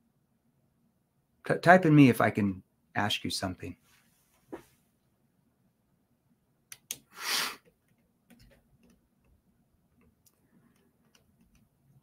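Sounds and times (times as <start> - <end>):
faint clicks: 6.7 - 12.0
man's sharp breath at microphone: 7.0 - 7.6.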